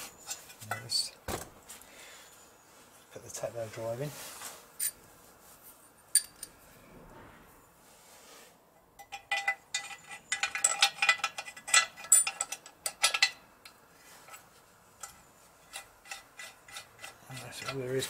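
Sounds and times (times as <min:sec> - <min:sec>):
small metal parts clicking: 0:09.0 - 0:14.4.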